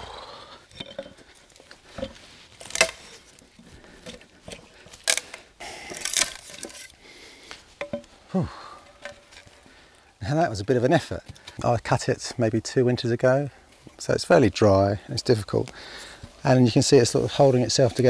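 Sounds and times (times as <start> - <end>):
wood cracking and splintering: 0.6 - 7.0.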